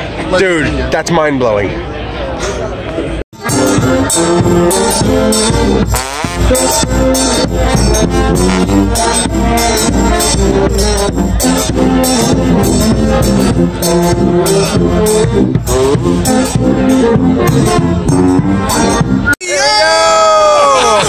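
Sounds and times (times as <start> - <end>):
bass drum steady beat: 3.4 - 19.3
marching brass band playing: 3.4 - 19.3.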